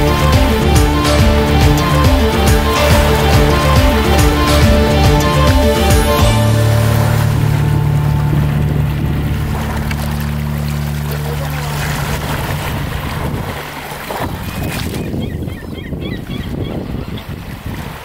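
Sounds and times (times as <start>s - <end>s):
steady low hum: 0.0s - 14.0s
waves washing over shingle: 0.0s - 15.2s
wind buffeting microphone: 6.9s - 11.0s, 11.7s - 18.0s.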